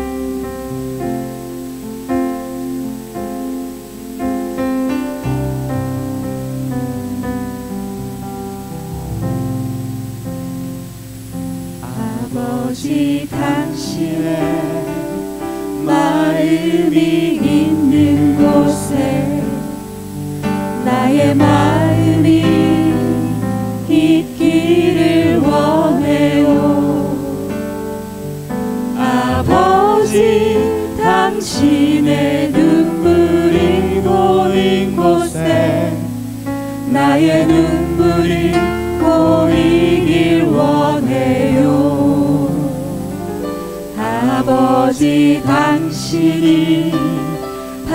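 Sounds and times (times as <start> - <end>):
instrumental accompaniment: 0.0 - 47.9
vocal group singing worship song: 11.8 - 47.9.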